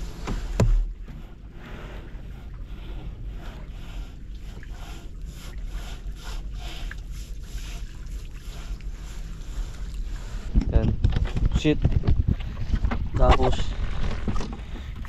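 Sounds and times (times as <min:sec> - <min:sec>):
water lapping against boat hull: 0:00.0 - 0:15.0.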